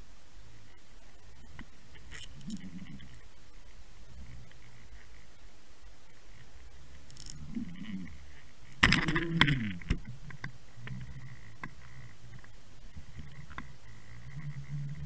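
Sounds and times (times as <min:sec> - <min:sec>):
low hum: 0:00.0 - 0:15.0
faint clicks: 0:00.5 - 0:05.4, 0:06.0 - 0:15.0
wavering low tones: 0:02.2 - 0:03.4, 0:07.3 - 0:15.0.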